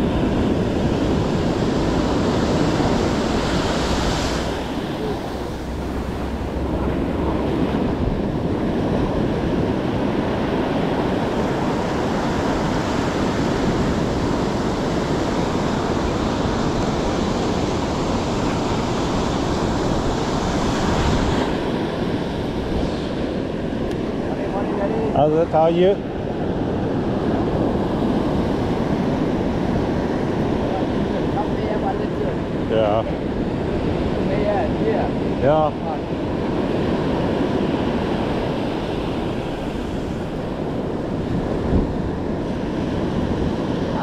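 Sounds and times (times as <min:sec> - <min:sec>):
ocean surf breaking: 0:00.0 - 0:44.0
wind on microphone: 0:00.0 - 0:44.0.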